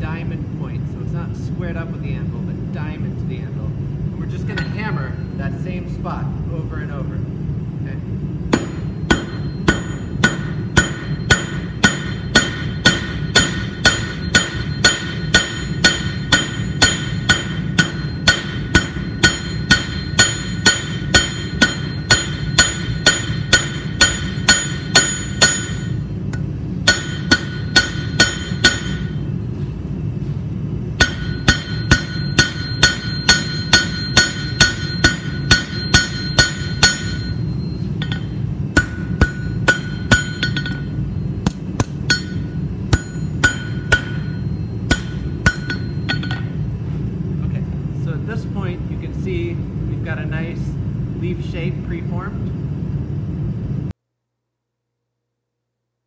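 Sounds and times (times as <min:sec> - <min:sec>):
hammer striking metal on anvil: 0:04.5 - 0:05.3, 0:08.5 - 0:29.3, 0:31.0 - 0:46.6.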